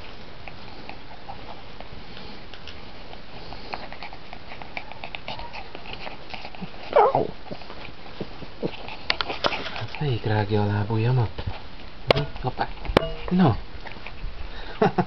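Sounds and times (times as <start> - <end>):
puppies play-biting and scuffling: 0.0 - 14.9
puppy yelp: 4.8 - 5.8, 6.6 - 7.7.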